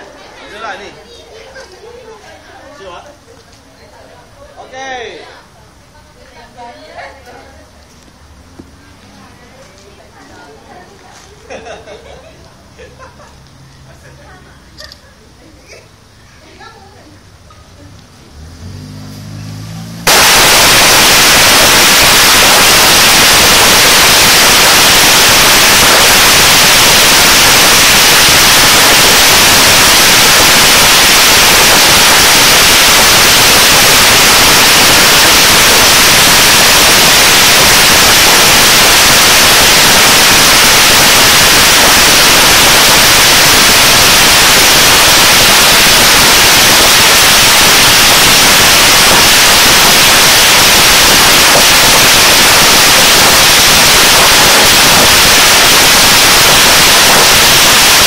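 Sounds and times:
firecrackers crackling: 18.4s - 58.0s.

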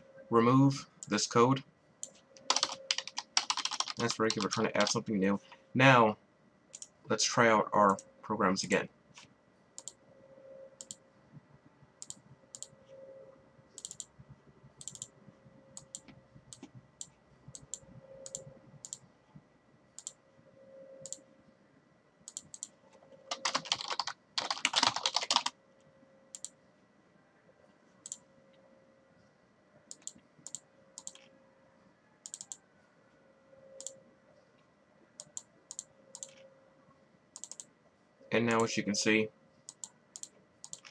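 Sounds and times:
fast keyboard keystrokes: 2.5s - 5.0s, 23.3s - 25.5s.

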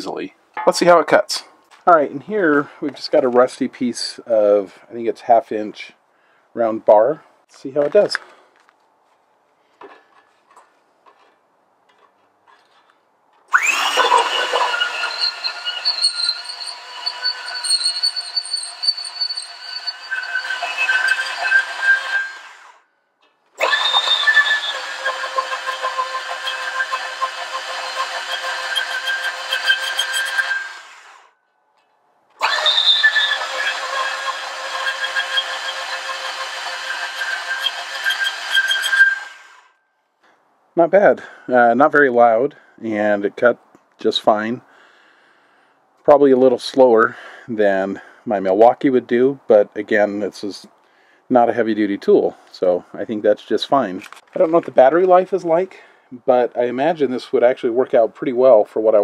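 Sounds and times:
saw blade squealing on metal: 13.5s - 22.7s, 23.6s - 30.8s, 32.4s - 39.4s
band saw motor whining: 13.5s - 22.8s, 23.6s - 31.4s, 32.4s - 39.7s.

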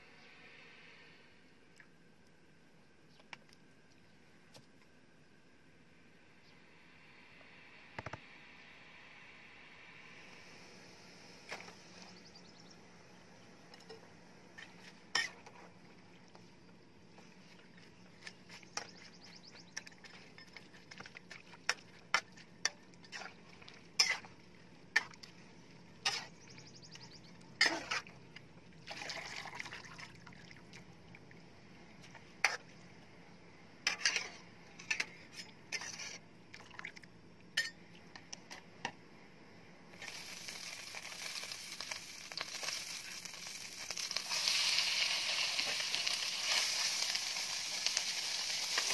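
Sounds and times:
sizzle in hot wok: 40.0s - 48.9s.

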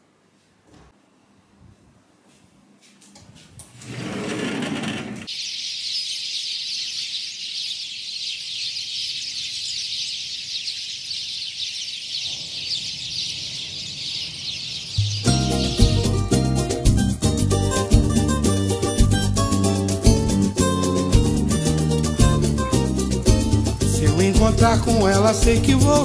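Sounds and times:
many small birds chirping: 5.3s - 16.4s.

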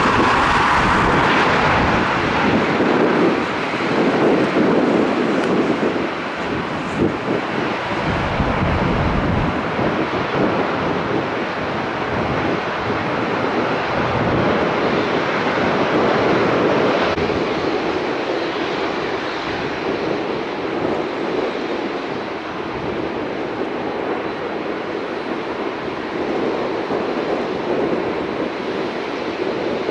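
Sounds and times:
distant airliner rushing: 0.0s - 11.6s
jet engines roaring: 0.0s - 29.9s
wind on microphone: 0.0s - 29.9s.

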